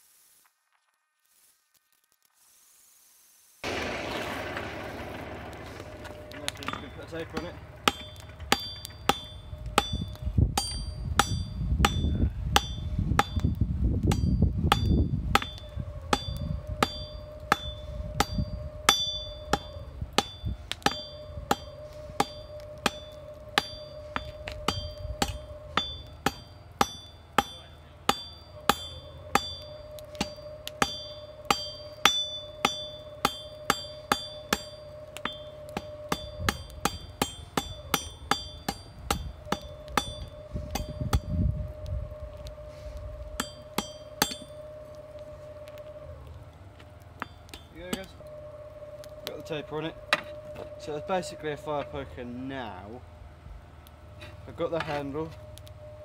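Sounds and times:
hammer striking steel on anvil: 0:06.6 - 0:13.5, 0:14.1 - 0:41.3, 0:43.4 - 0:44.5.

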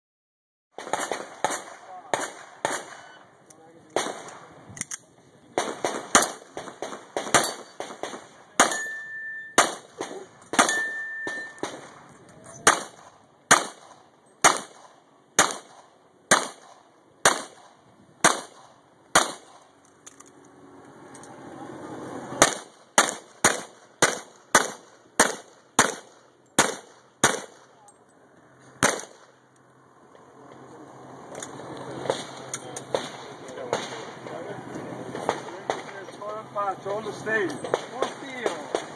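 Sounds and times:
pistol shots: 0:00.8 - 0:03.2, 0:03.9 - 0:04.5, 0:05.5 - 0:08.9, 0:09.5 - 0:19.7, 0:22.4 - 0:27.7, 0:28.8 - 0:29.4, 0:32.0 - 0:34.2, 0:37.6 - 0:38.9.

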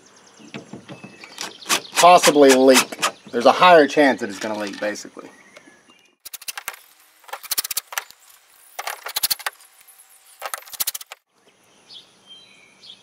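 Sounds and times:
impact driver hammering: 0:00.5 - 0:03.3.

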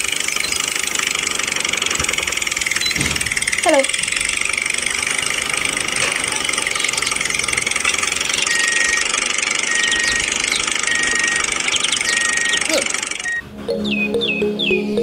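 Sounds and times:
toy tractor buzzing: 0:00.0 - 0:13.5
high beep: 0:08.4 - 0:09.1, 0:09.7 - 0:15.0.

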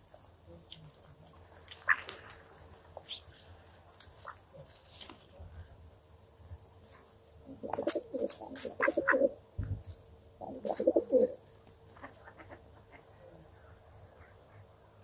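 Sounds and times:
pigeons cooing: 0:07.5 - 0:09.4, 0:10.4 - 0:13.1.

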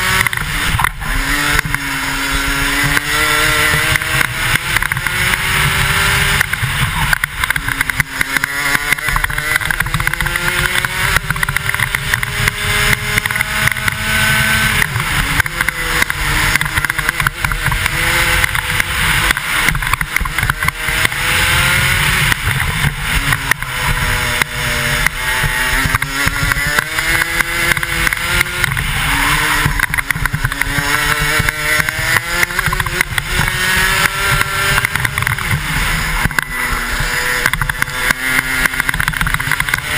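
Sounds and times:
kart engine at full throttle: 0:00.0 - 0:39.9
wind rushing over microphone: 0:00.0 - 0:39.9.

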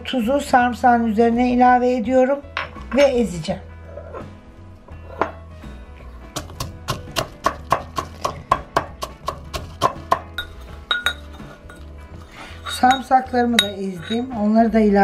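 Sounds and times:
metal pestle pounding in mortar: 0:06.3 - 0:11.8.

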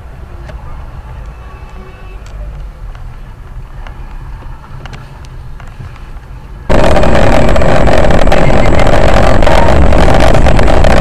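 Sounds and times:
loud steady rushing noise: 0:06.6 - 0:11.0
strong hum: 0:06.7 - 0:11.0.

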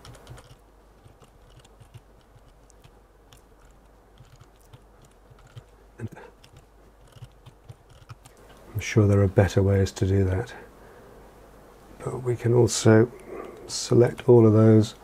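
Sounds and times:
keyboard and mouse clicks: 0:00.0 - 0:05.7, 0:06.4 - 0:08.6
low steady hum: 0:00.0 - 0:15.0.

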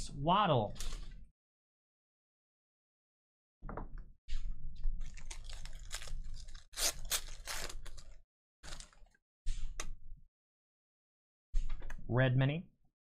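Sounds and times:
foil wrapper crinkling and tearing: 0:05.0 - 0:09.1.

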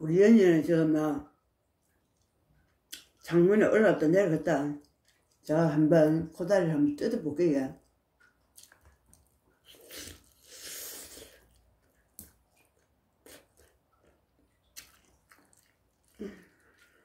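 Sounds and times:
soft chewing and biting: 0:01.6 - 0:03.3, 0:04.8 - 0:05.5, 0:07.8 - 0:17.0.

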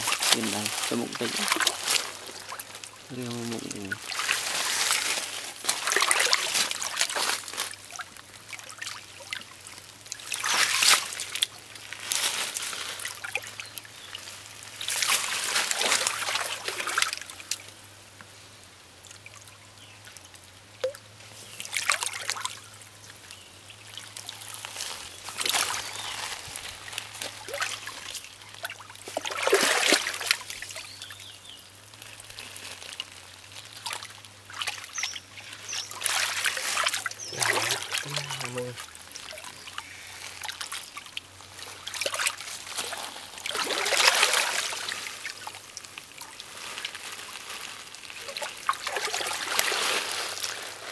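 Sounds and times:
hands splashing in muddy water: 0:00.0 - 0:08.0, 0:24.4 - 0:30.8, 0:33.8 - 0:39.5, 0:41.6 - 0:47.5
water trickling: 0:00.0 - 0:18.2, 0:18.8 - 0:50.9.

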